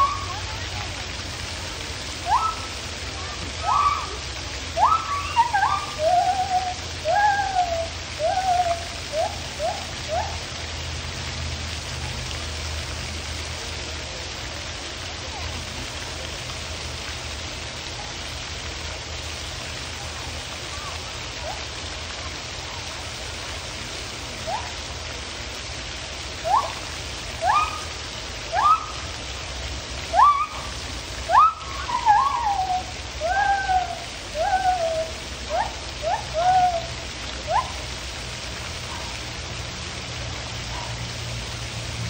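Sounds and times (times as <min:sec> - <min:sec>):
gibbon whoops and hoots: 0:00.0 - 0:00.6, 0:02.2 - 0:02.8, 0:03.5 - 0:10.5, 0:20.7 - 0:21.7, 0:24.4 - 0:24.8, 0:26.4 - 0:29.1, 0:30.1 - 0:37.9
background hiss: 0:00.0 - 0:42.0.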